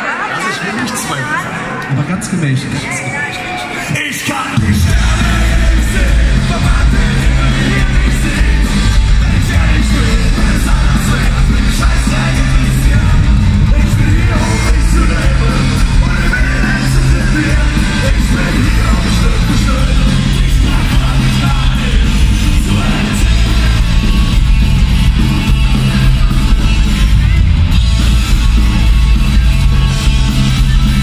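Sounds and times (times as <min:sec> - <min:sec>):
audience singing and yelling: 0:00.0 - 0:31.0
live rock band: 0:03.4 - 0:31.0
person singing: 0:04.6 - 0:24.1.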